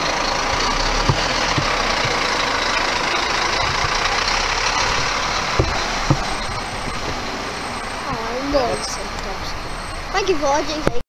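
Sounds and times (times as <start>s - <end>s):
bus engine pulling away: 0.0s - 11.0s
street traffic noise: 0.0s - 11.0s
soft thumps: 1.0s - 2.4s, 5.0s - 7.2s.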